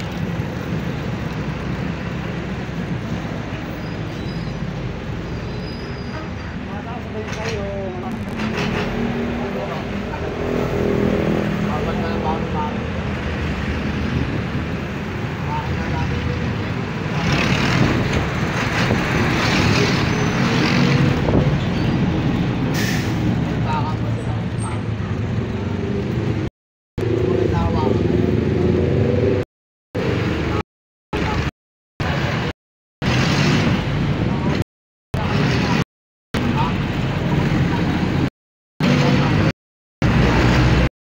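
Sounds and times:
vehicle engine rumble: 0.0 - 30.6
road noise: 0.0 - 40.9
traffic passing on street: 0.0 - 40.9.

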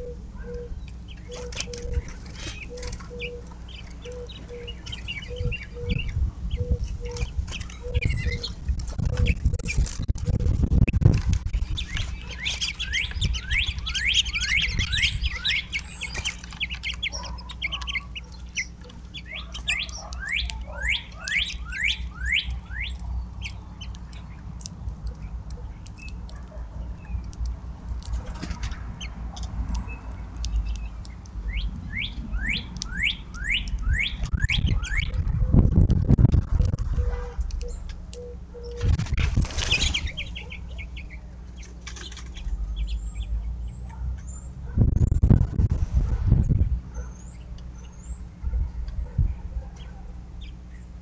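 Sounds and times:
steady low rumble: 0.0 - 51.0
songbird whistling falling notes: 11.7 - 18.0, 19.3 - 23.0, 31.5 - 35.2.

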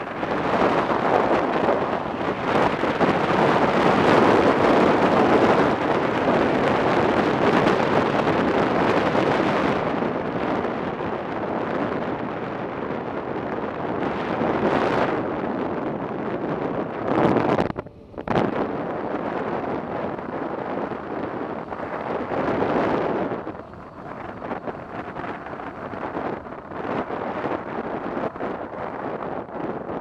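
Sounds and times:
wind roaring over microphone: 0.0 - 30.0.

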